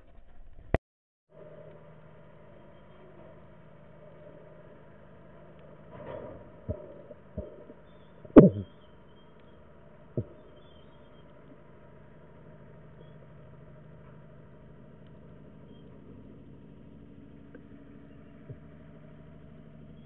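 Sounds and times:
low underwater hum: 0.0 - 20.0
dull knocks underwater: 6.1 - 8.7.

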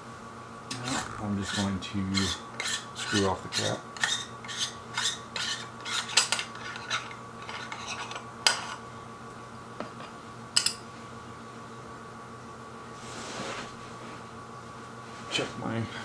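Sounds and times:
cap threads scraping: 0.7 - 8.2.

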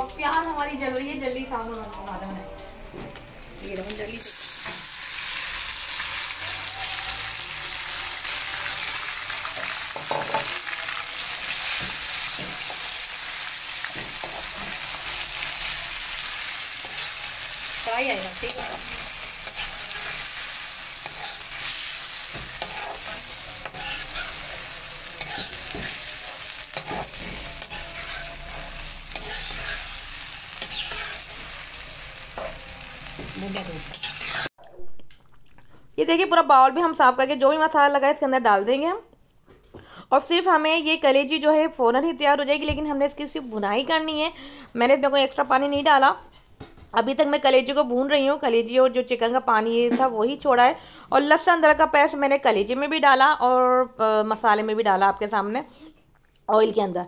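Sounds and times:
chicken sizzling in hot oil: 3.2 - 34.5
steel spoon scraping pan: 16.8 - 31.4, 33.5 - 34.5.

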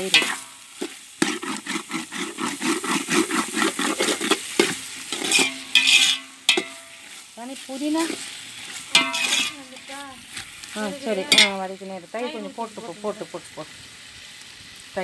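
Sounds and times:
food sizzling in oil: 0.0 - 15.0
metal spoon scraping a pot: 0.1 - 7.3, 8.0 - 11.6.

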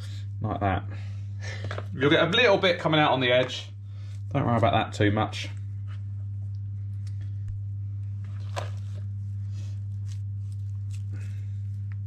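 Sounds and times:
steady low hum: 0.0 - 12.0
hands squishing mashed potato: 8.2 - 12.0.

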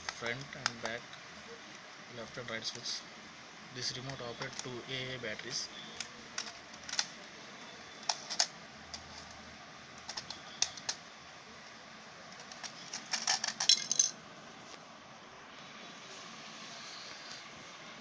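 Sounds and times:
plastic toy car clicks and knocks: 8.0 - 9.4, 10.0 - 11.0
toy clattering on stone floor: 8.0 - 9.4, 10.0 - 11.0, 12.3 - 14.2.

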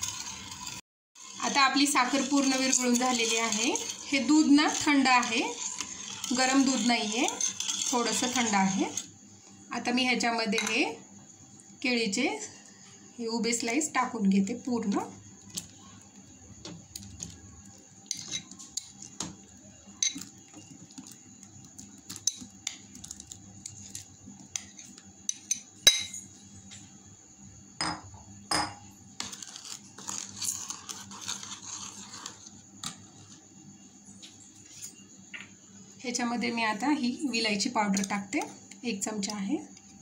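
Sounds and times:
spoon scraping: 0.0 - 9.1, 17.0 - 19.2, 19.9 - 26.3, 29.2 - 33.4
metal spoon clinking on glass bowl: 25.3 - 26.3.

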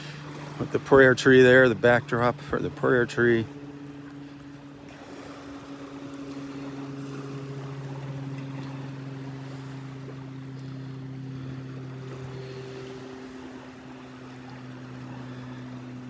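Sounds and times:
motorboat engine droning: 0.0 - 16.0.

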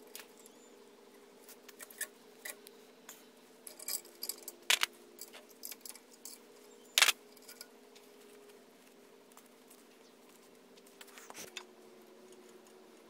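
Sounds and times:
faint steady hum: 0.0 - 13.0
metal tool clicks and clinks: 3.7 - 6.4, 7.0 - 7.7.

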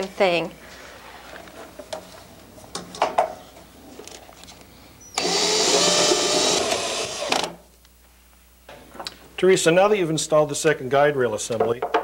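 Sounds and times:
cordless drill driving screw: 5.2 - 7.6.

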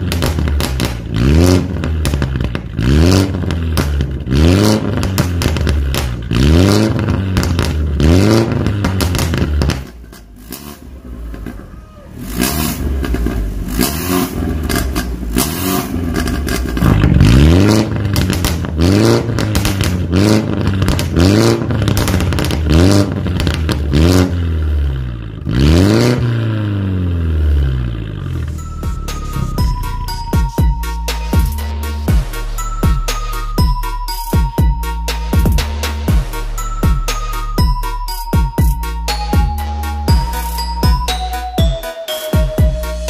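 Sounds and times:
exhaust crackles: 0.0 - 33.8
car engine revving: 0.0 - 41.6.

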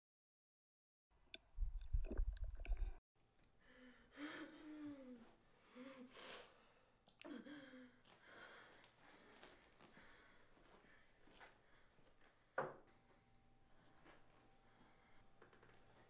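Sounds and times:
woman moaning and sighing: 3.7 - 6.1, 7.2 - 8.1.

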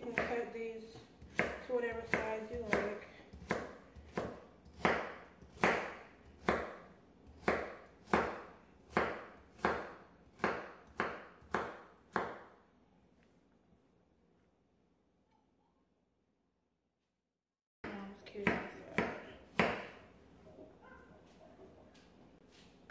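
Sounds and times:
knife chopping on wooden board: 1.2 - 12.5, 18.4 - 20.0.

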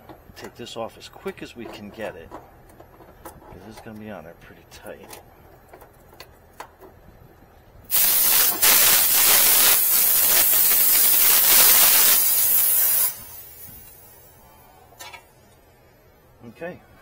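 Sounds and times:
refrigerant gas hissing: 7.9 - 15.4.

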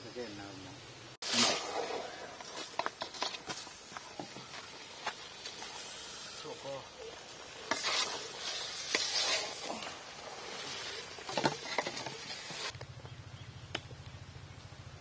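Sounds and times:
curry sizzling: 1.1 - 12.8
metal ladle scraping pot: 7.4 - 12.7.

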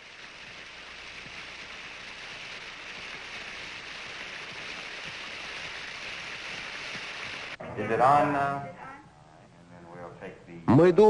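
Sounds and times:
water splashing into a pool: 0.0 - 7.6.

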